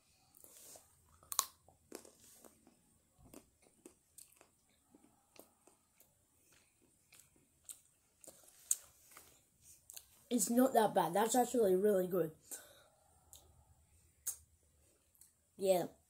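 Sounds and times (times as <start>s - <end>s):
person chewing: 0.2s - 10.2s.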